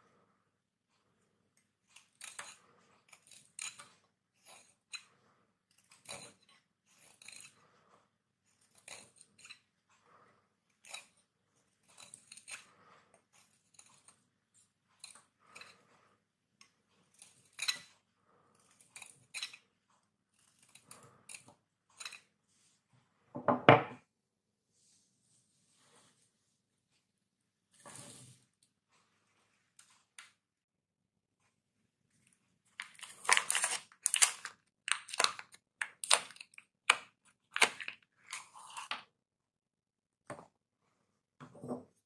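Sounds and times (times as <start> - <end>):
knife cutting soap: 1.0 - 22.8, 32.2 - 39.2.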